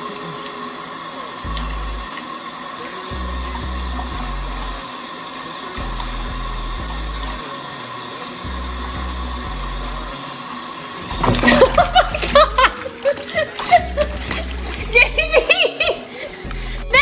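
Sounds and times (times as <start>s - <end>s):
faucet water pouring into tub: 0.0s - 17.0s
background music with bass: 1.5s - 2.1s, 3.1s - 4.8s, 5.8s - 7.4s, 8.5s - 10.2s, 11.1s - 12.8s, 13.8s - 15.7s, 16.4s - 17.0s.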